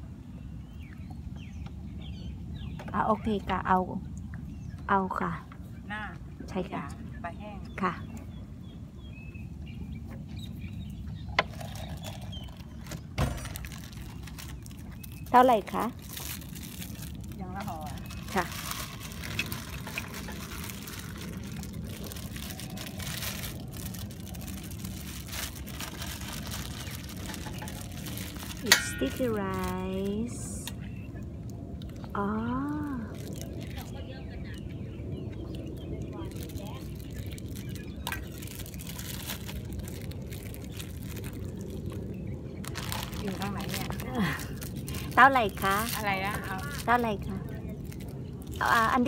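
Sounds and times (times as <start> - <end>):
low background rumble: 0.0 - 49.0
plastic bag and glove crinkling: 10.8 - 49.0.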